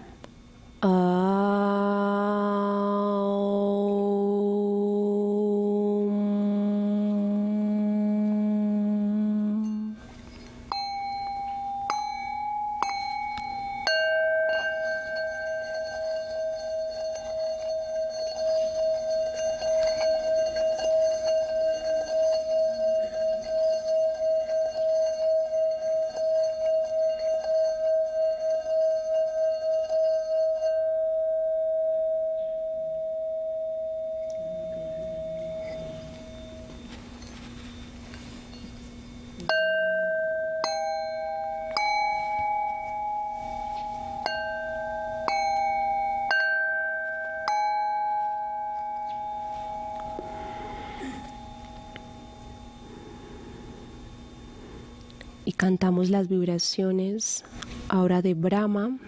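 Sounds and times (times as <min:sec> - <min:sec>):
singing bowl rim rubbed ringing: 0:07.0 - 0:56.2
singing bowl struck: 0:10.7 - 0:55.1.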